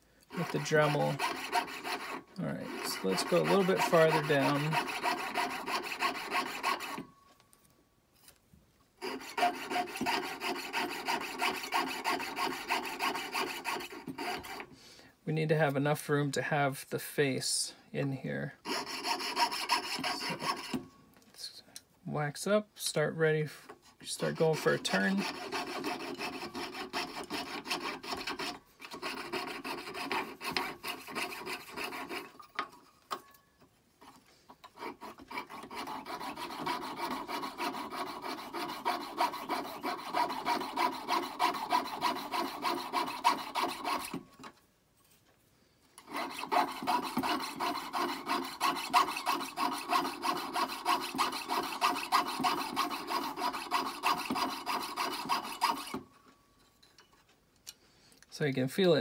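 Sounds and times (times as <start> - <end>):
saw blade rasping through metal: 0.0 - 7.1, 9.0 - 14.7, 18.6 - 21.0, 24.1 - 33.3, 34.0 - 44.6, 46.0 - 56.1.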